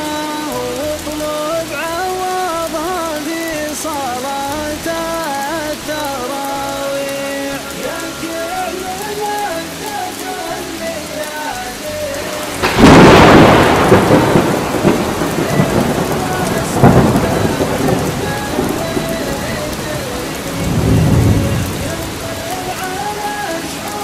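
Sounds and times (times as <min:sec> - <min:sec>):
steady rain: 0:00.0 - 0:24.0
thunder cracking and rumbling: 0:12.4 - 0:24.0.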